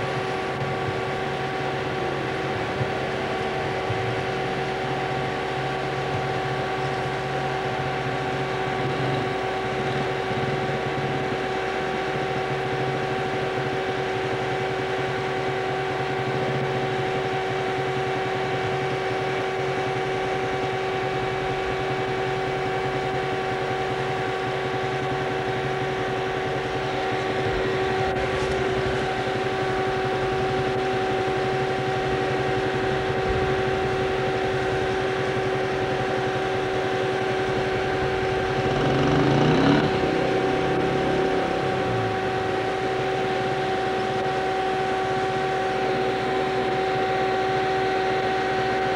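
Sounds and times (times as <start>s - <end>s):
two-tone mechanical hum: 0.0s - 48.9s.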